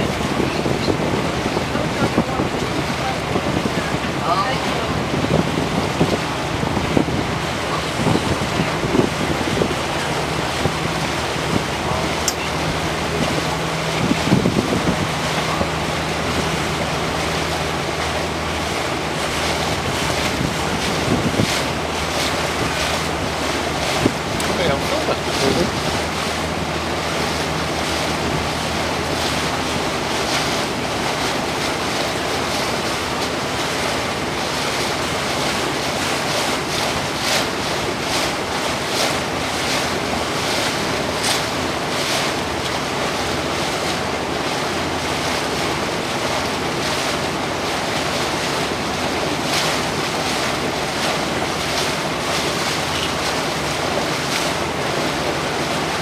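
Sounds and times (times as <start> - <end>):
wind on microphone: 0.0 - 42.6
boat engine hum: 0.0 - 56.0
water rushing along hull: 0.0 - 56.0.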